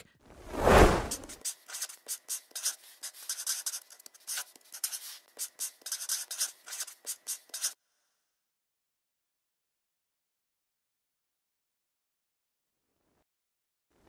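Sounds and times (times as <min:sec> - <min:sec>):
marker scratchy strokes: 0:00.6 - 0:07.8.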